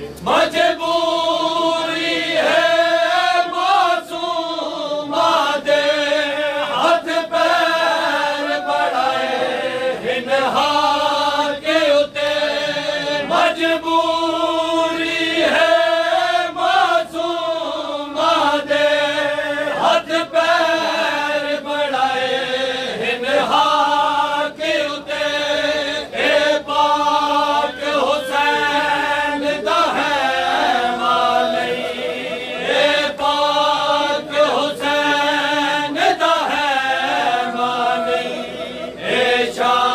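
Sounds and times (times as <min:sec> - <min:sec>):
men chanting a lament: 0:00.0 - 0:39.9.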